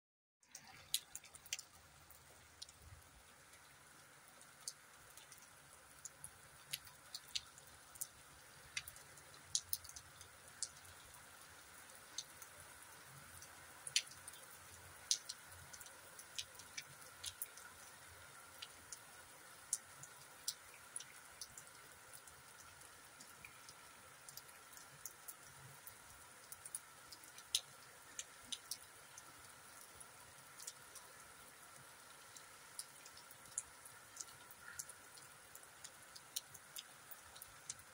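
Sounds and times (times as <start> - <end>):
raindrops tapping: 0.4 - 11.1, 13.4 - 19.0, 32.1 - 37.9
rain hiss: 0.5 - 37.9.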